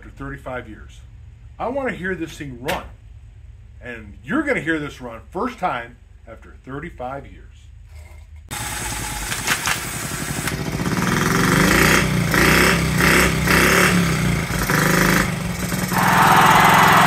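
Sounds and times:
small engine sputtering: 0:07.9 - 0:17.0.

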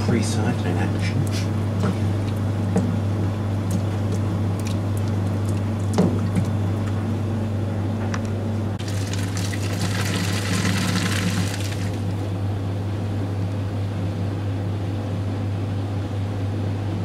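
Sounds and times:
steady low hum: 0:00.0 - 0:17.0
boiling water gurgling and splashing: 0:00.1 - 0:07.1, 0:08.8 - 0:12.3.

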